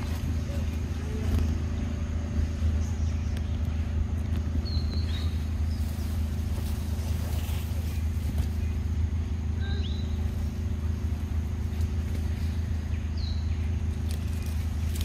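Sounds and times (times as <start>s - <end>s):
steady low motor hum: 0.0s - 15.0s.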